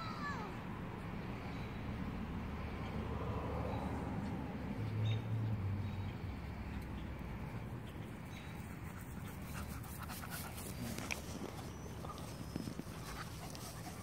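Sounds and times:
dog panting: 0:08.8 - 0:14.0.

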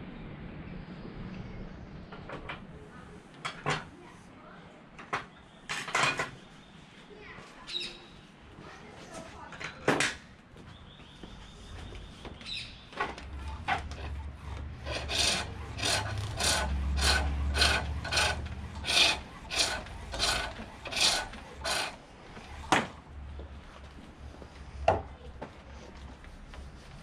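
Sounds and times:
lathe tool scraping spinning wood: 0:13.6 - 0:22.9.

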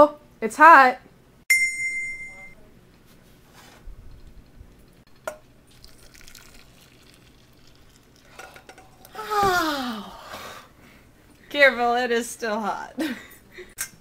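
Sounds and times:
sharp clink: 0:01.5 - 0:02.6
milk pouring into metal bowl: 0:05.2 - 0:09.2.

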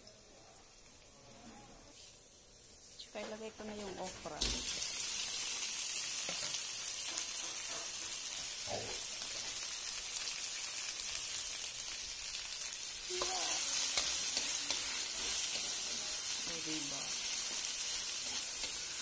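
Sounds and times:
food sizzling in hot oil: 0:00.0 - 0:19.0
spatula stirring in wok: 0:06.2 - 0:09.6, 0:12.7 - 0:19.0.

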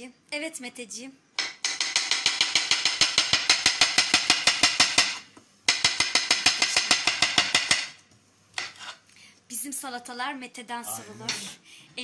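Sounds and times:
knife chopping on wooden board: 0:01.4 - 0:08.0.

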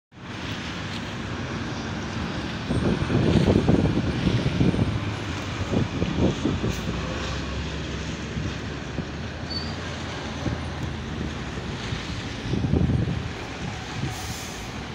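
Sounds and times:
street traffic passing: 0:00.1 - 0:14.9
tyre and road noise: 0:00.1 - 0:14.9
truck diesel engine rumbling: 0:00.2 - 0:14.9.

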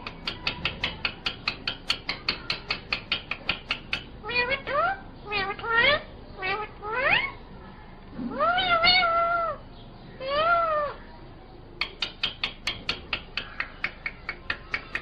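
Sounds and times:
parakeet sharp clicks: 0:00.0 - 0:04.2, 0:11.8 - 0:15.0
parakeet calls: 0:00.1 - 0:07.6, 0:08.3 - 0:15.0.

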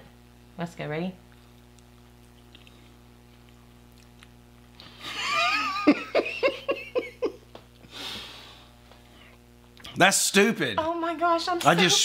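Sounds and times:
person laughing: 0:05.0 - 0:07.6, 0:11.6 - 0:12.0
breathy exhale: 0:07.9 - 0:09.3.

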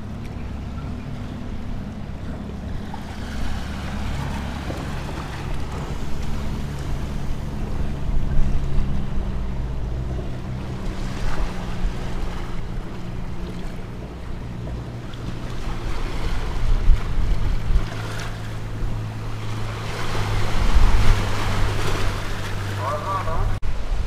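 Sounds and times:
wind rumbling on microphone: 0:00.0 - 0:24.0
small waves washing over rocks: 0:15.1 - 0:24.0.

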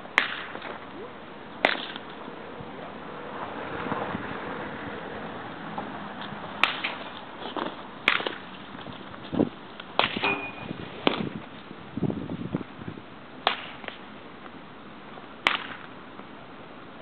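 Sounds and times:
baseball bat cracking ball: 0:00.2 - 0:00.8, 0:01.6 - 0:02.0, 0:06.6 - 0:08.5, 0:10.0 - 0:11.3, 0:13.4 - 0:14.0, 0:15.4 - 0:15.9.

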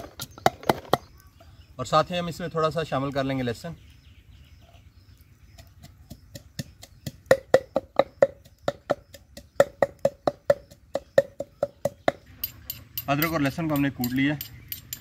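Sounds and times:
pestle pounding in wooden mortar: 0:00.0 - 0:01.1, 0:05.5 - 0:15.0.

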